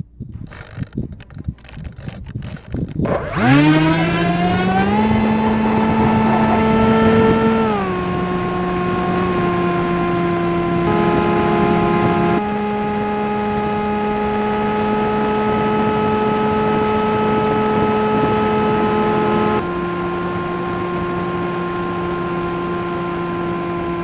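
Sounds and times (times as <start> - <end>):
electric motor and propeller hum: 0.0 - 24.0
wind rush: 0.1 - 9.5.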